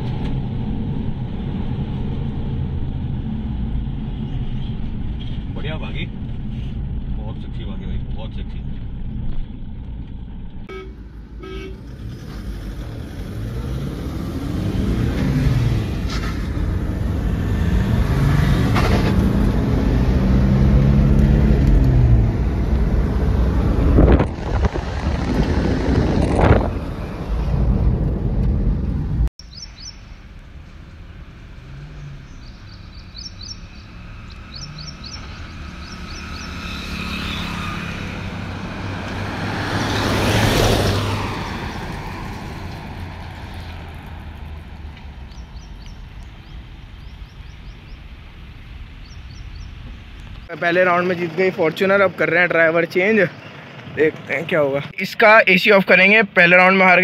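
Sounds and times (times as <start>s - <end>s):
engine running at low revs: 11.2s - 29.3s
car engine accelerating hard: 11.8s - 29.3s
wind noise gusts: 12.0s - 50.5s.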